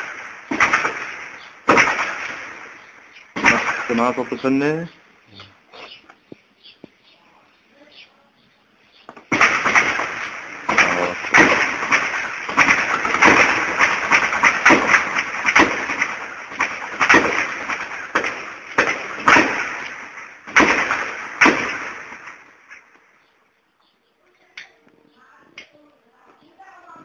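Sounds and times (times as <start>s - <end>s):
heavy gunfire with echo: 0.0s - 4.8s, 9.3s - 22.5s.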